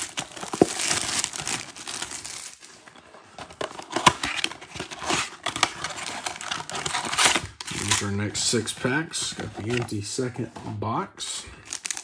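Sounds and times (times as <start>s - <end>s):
plastic wrap crinkling and tearing: 0.0s - 2.8s, 3.8s - 8.2s, 11.6s - 12.0s.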